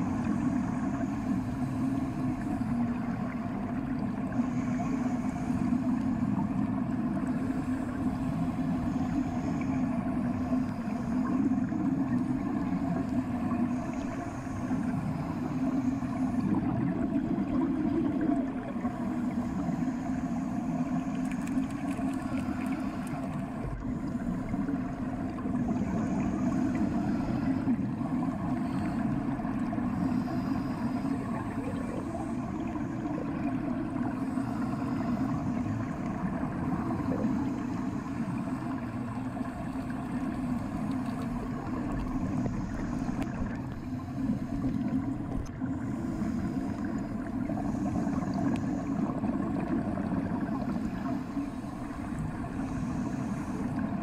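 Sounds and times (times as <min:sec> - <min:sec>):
muffled underwater rumble: 0:00.0 - 0:54.0.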